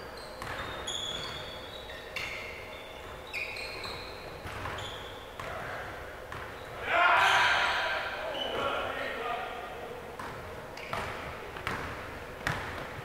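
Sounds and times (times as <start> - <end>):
sneaker squeaks on gym floor: 0.0 - 8.8, 10.8 - 12.7
basketball bouncing: 0.4 - 1.4, 5.4 - 6.6, 10.2 - 13.0.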